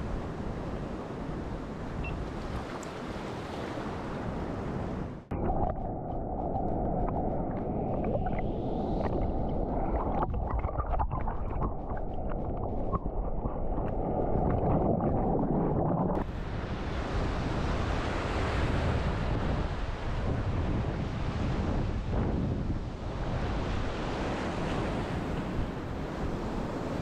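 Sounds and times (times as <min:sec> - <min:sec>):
wind on microphone: 0:00.0 - 0:27.0
ocean surf: 0:12.1 - 0:22.2, 0:22.9 - 0:27.0.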